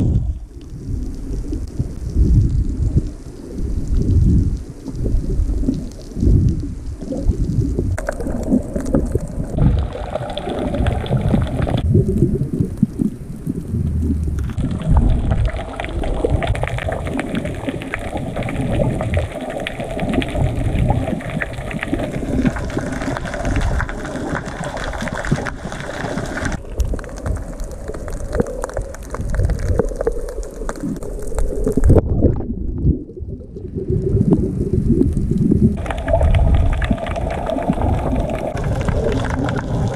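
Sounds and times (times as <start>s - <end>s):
underwater water rumbling: 0.0s - 39.9s.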